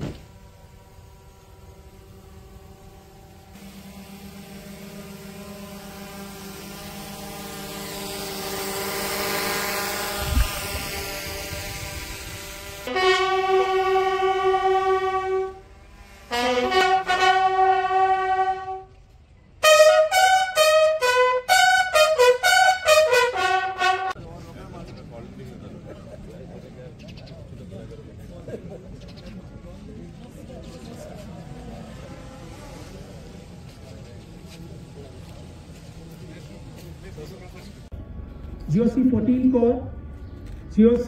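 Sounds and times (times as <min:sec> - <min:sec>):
bugle call: 0:12.9 - 0:15.6, 0:16.3 - 0:18.9, 0:19.6 - 0:24.2.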